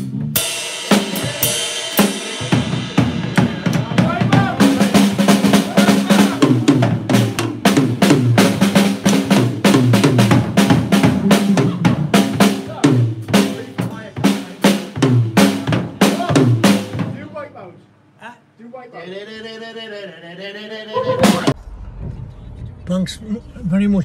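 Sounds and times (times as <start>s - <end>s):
drum kit played fast: 0.0s - 17.5s, 21.0s - 21.6s.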